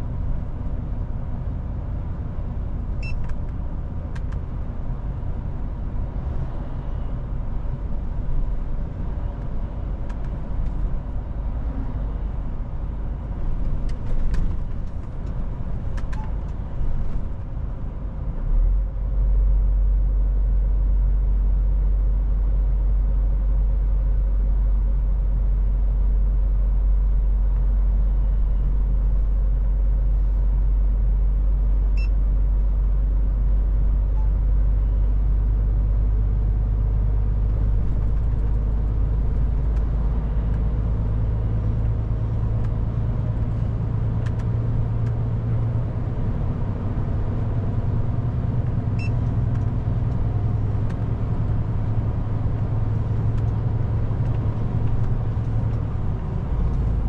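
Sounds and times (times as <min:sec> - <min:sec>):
diesel engine drone: 0:00.0 - 0:57.0
road noise: 0:00.0 - 0:57.0.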